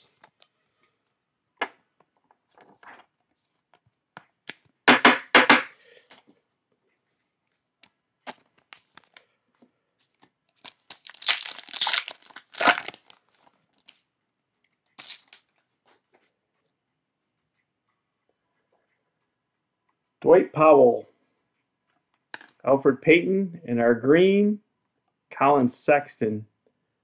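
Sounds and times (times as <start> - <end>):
foil wrapper tearing and crinkling: 10.6 - 14.0, 15.0 - 15.5.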